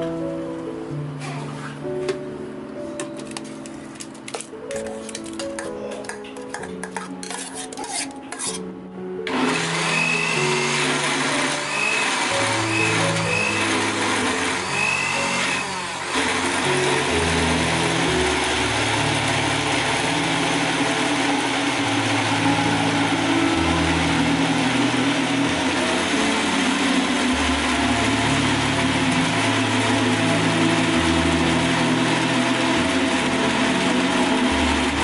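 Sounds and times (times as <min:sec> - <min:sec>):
blender motor whirring: 0:09.3 - 0:35.0.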